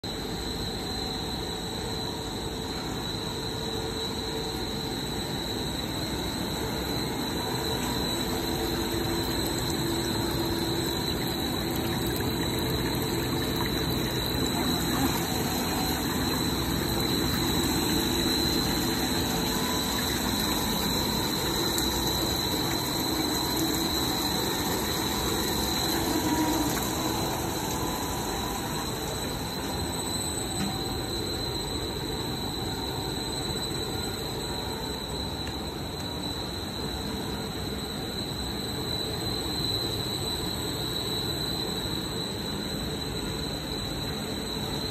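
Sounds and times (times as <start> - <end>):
high-pitched machine whine: 0.0 - 44.9
steady machinery noise: 6.7 - 31.7.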